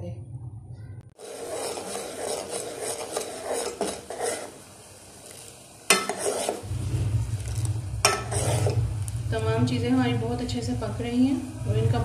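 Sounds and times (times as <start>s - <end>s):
low hum: 0.0s - 1.2s, 6.6s - 12.0s
spoon stirring in metal pot: 1.2s - 4.6s, 5.3s - 6.7s, 7.3s - 8.8s
spoon clanking against pot: 5.9s - 6.6s, 8.1s - 8.8s.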